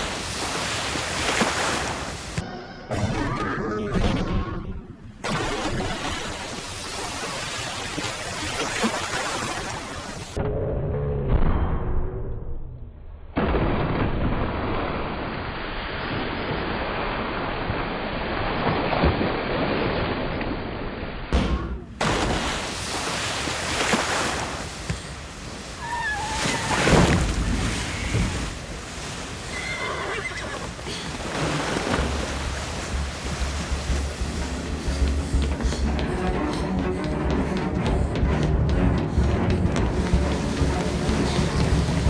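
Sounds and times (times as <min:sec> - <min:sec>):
churning seawater of boat wake: 0:00.0 - 0:02.4, 0:22.0 - 0:36.8, 0:39.8 - 0:42.0
water splash: 0:00.0 - 0:02.4, 0:05.2 - 0:10.4, 0:13.4 - 0:35.5
horse whinnying: 0:29.5 - 0:30.8.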